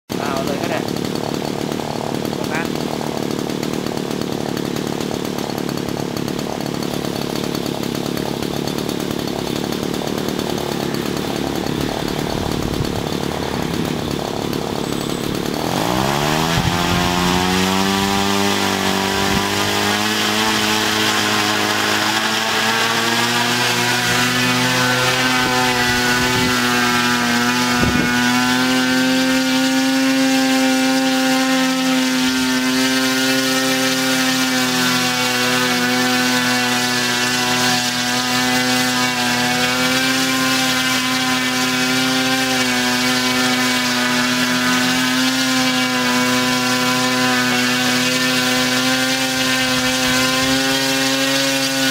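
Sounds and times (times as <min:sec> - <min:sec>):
small aircraft engine revving: 0:09.9 - 0:33.3.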